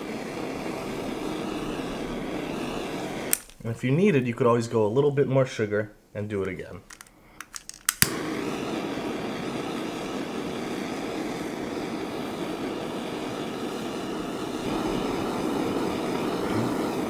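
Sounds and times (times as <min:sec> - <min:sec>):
blowtorch flame burning: 0:00.0 - 0:04.0, 0:06.9 - 0:17.0.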